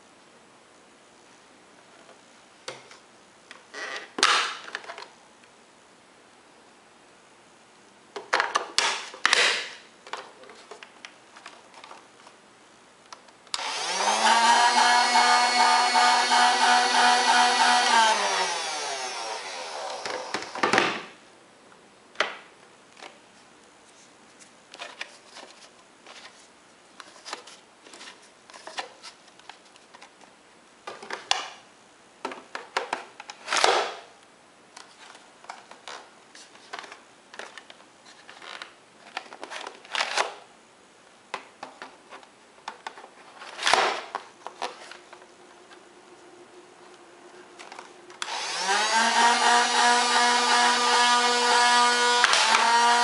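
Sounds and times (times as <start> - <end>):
toy blaster flywheels winding down: 13.6 - 20.6, 48.2 - 53.0.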